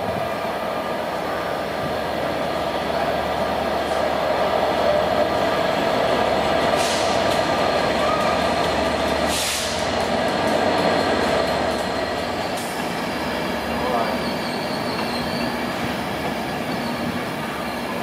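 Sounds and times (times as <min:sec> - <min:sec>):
train rumbling past: 0:00.0 - 0:18.0
short hisses: 0:06.7 - 0:07.2, 0:09.3 - 0:09.9.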